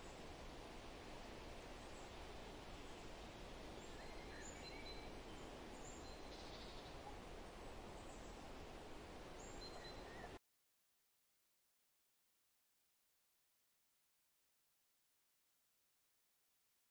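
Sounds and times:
low background hiss: 0:00.0 - 0:10.4.

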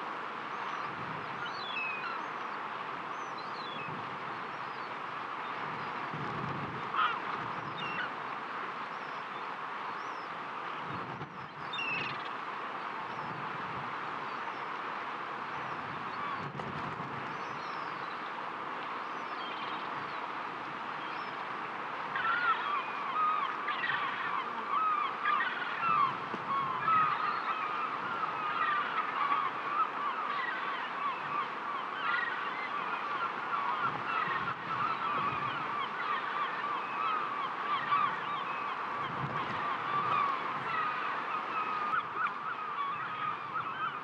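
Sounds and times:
flock of birds calling: 0:00.6 - 0:02.5, 0:06.9 - 0:08.2, 0:19.0 - 0:20.3, 0:22.1 - 0:44.0
sea waves: 0:17.5 - 0:44.0.

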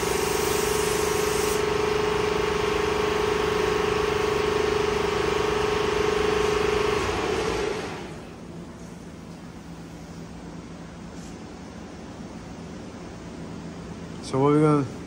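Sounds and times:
spray gun hissing: 0:00.0 - 0:01.8
air compressor humming: 0:00.0 - 0:15.0.

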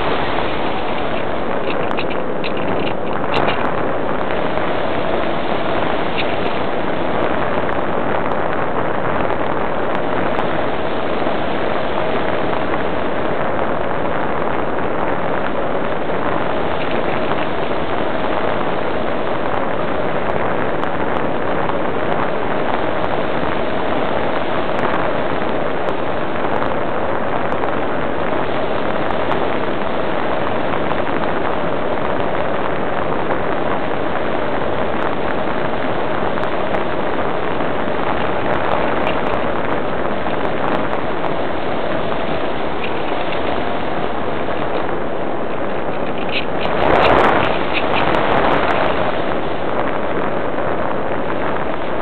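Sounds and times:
rush of air: 0:00.0 - 0:52.0.

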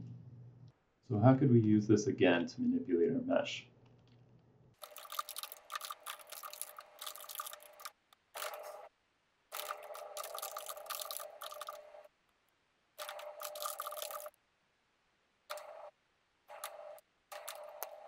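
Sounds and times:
fast typing on a keyboard: 0:04.8 - 0:08.8, 0:09.6 - 0:11.8, 0:13.0 - 0:14.4, 0:16.5 - 0:18.0.

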